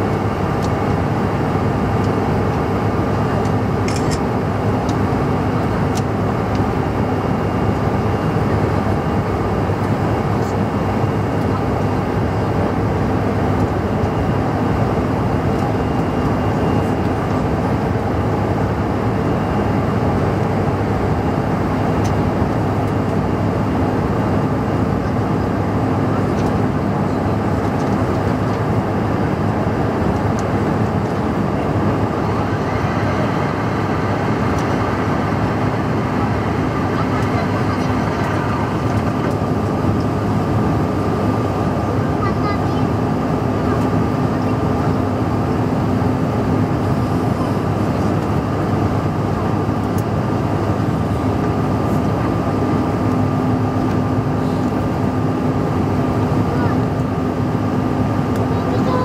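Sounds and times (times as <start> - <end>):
jet engines droning: 0.0 - 59.0.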